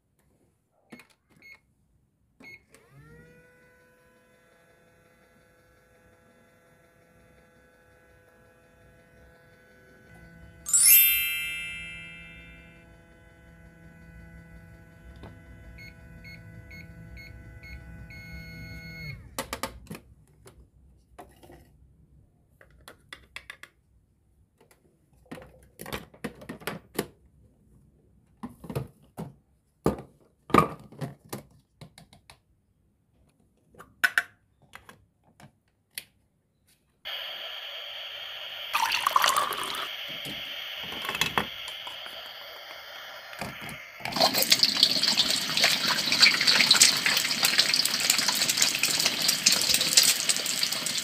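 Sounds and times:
electronic hum with beeps: 7.3 - 19.4, 37.1 - 46.6
electronic chime: 10.7 - 12.8
water running: 37.8 - 42.8, 44.1 - 51.0.

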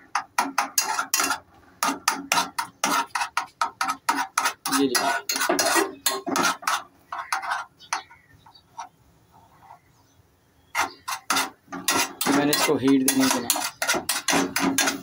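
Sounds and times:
metal spoon scraping a pot: 0.0 - 9.8, 10.7 - 15.0.

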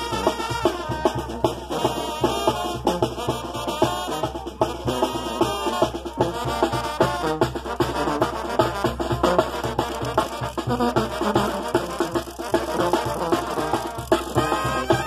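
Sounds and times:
brass band playing dance tune: 0.0 - 15.0.

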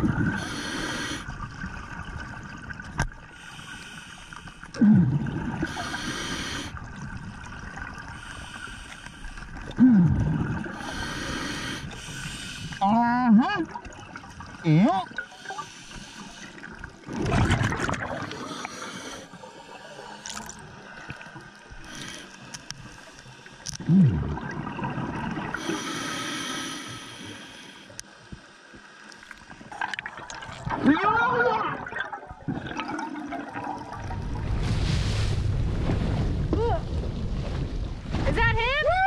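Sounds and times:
gurgling air bubbles: 0.0 - 2.8, 4.7 - 8.6, 9.5 - 12.8, 17.0 - 19.1, 23.8 - 26.1, 29.7 - 36.4
muffled underwater wash: 0.0 - 39.0.

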